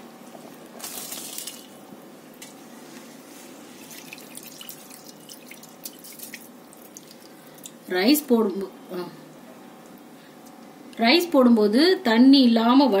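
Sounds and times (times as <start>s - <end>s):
water boiling hard in a pot: 3.6s - 7.8s.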